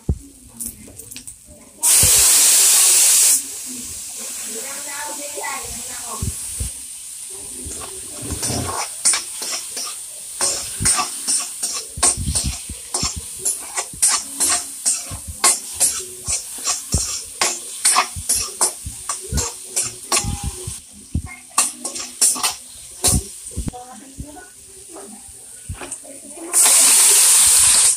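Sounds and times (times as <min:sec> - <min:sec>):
food sizzling: 0:00.0 - 0:27.9
metal ladle scraping wok: 0:07.8 - 0:20.7.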